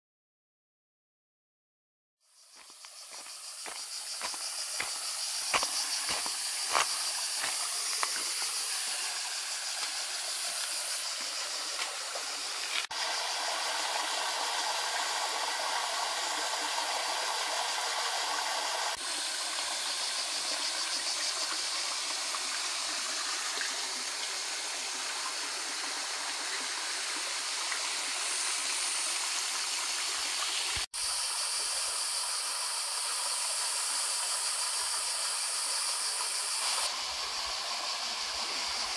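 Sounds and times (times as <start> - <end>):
waterfall rushing and splashing: 3.6 - 19.0.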